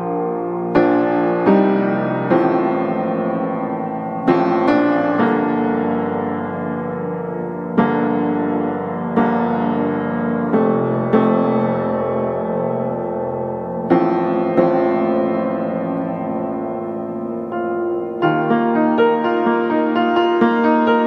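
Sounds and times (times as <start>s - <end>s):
piano chords ringing: 0.0s - 21.0s.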